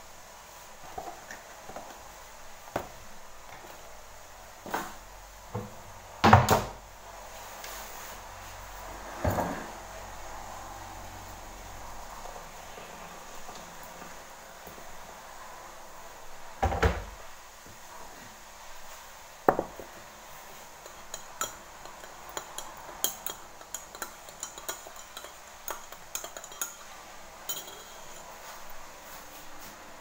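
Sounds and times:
utensils clinking against pans: 20.8s - 28.7s.

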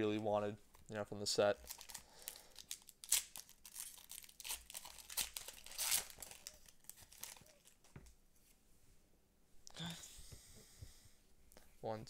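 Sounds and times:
foil wrapper crinkling: 1.6s - 7.8s.

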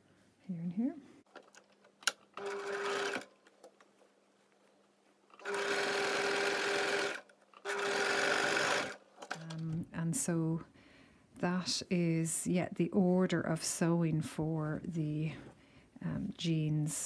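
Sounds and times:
sewing machine stitching: 2.0s - 3.4s, 5.4s - 9.6s.

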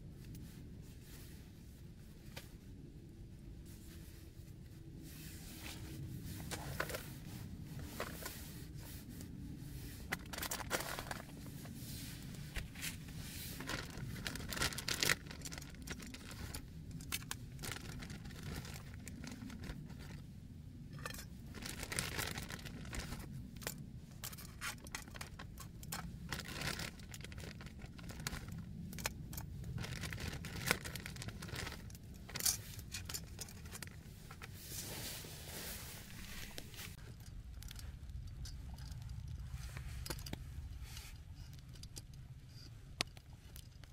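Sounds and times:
low steady rumble: 0.0s - 43.9s
light scrapes and clicks: 5.2s - 14.4s
plastic bags rustling: 10.0s - 20.3s, 21.0s - 23.4s, 24.2s - 37.0s.

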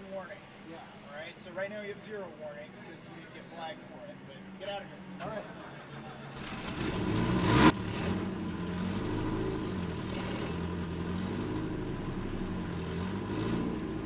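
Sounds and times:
truck engine revving: 5.0s - 14.0s.

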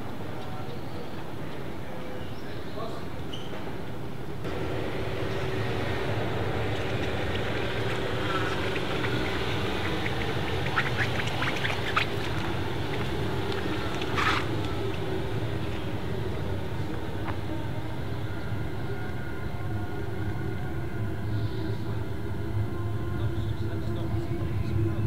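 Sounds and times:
quiet car engine: 4.4s - 19.3s
tyres rumbling on cobblestones: 4.5s - 18.2s.

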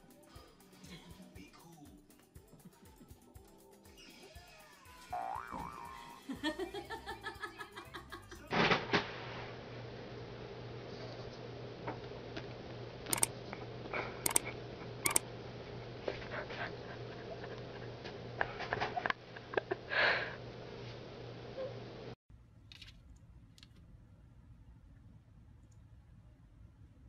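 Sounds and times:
sharp clicks: 13.1s - 13.3s, 14.2s - 14.4s, 15.0s - 15.2s.

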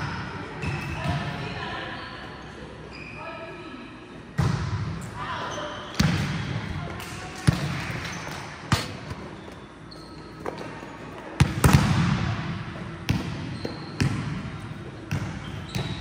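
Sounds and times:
volleyball smacks in a hall: 4.3s - 5.1s, 5.9s - 9.3s, 11.4s - 16.0s.

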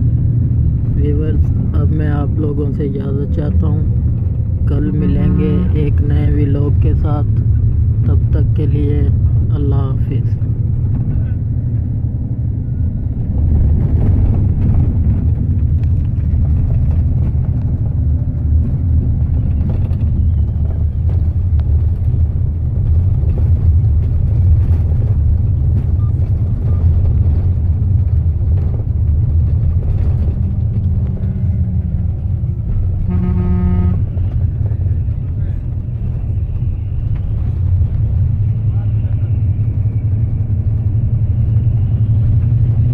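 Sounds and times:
bus engine rumble: 0.0s - 42.9s
horn honking: 33.0s - 34.4s.

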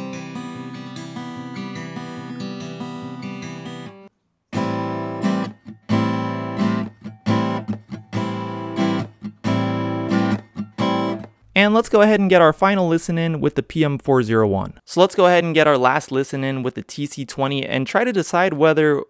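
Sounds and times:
acoustic guitar chords: 0.0s - 12.9s.

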